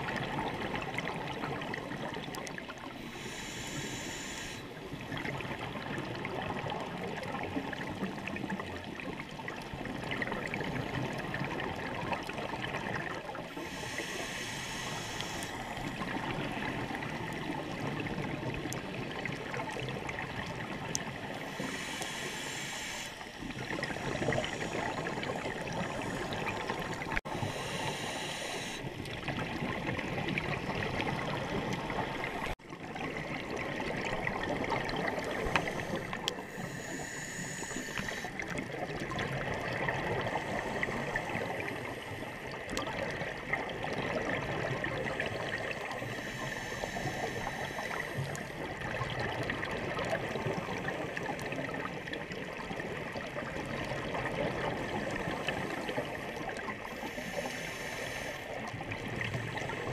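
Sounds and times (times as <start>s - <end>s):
underwater watery rush: 0.0s - 59.9s
regulator bubbling hiss: 3.0s - 4.8s, 13.5s - 18.1s, 20.9s - 29.1s, 34.3s - 38.8s, 45.0s - 48.9s, 54.7s - 59.9s.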